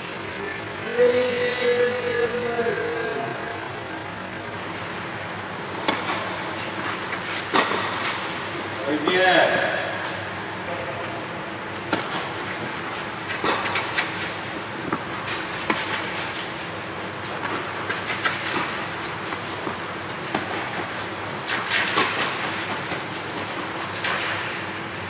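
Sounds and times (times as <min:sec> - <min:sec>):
steady background hum: 0:00.0 - 0:25.0
tennis ball bouncing on court: 0:05.7 - 0:08.4, 0:11.8 - 0:16.6, 0:17.3 - 0:24.7
tennis ball struck by rackets: 0:05.7 - 0:08.4, 0:11.8 - 0:16.6, 0:17.3 - 0:24.7.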